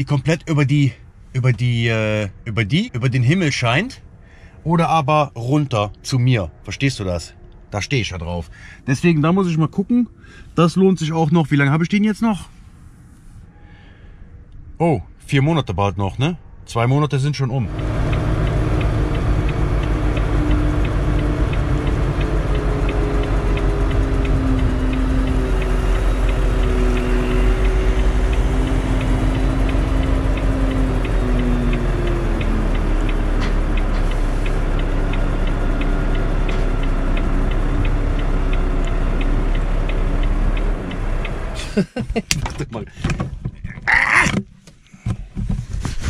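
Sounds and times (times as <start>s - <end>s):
diesel truck engine droning: 16.2s - 42.9s
faint regular ticking: 17.7s - 42.0s.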